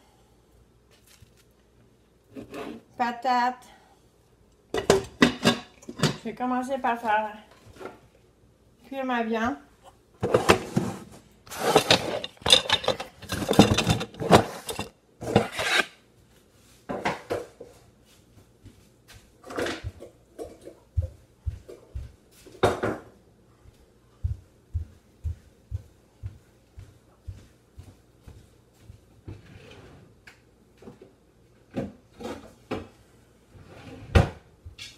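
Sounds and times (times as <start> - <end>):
pots and pans scraping and knocking: 10.2 - 15.9
soft low thumps: 24.2 - 26.4.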